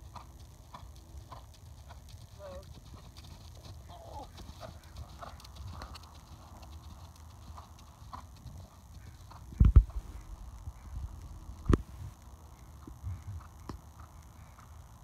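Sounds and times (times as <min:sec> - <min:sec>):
horse hoofbeats cantering: 0:00.0 - 0:11.8.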